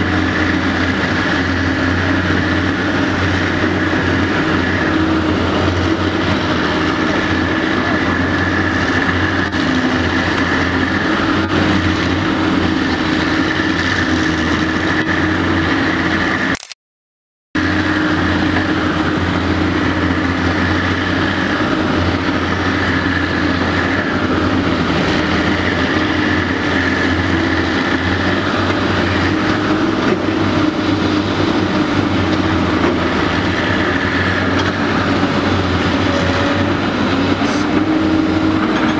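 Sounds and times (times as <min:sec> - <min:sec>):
constant high whine: 0:00.0 - 0:16.8, 0:17.6 - 0:38.9
excavator diesel engine running: 0:00.0 - 0:16.8, 0:17.6 - 0:38.9.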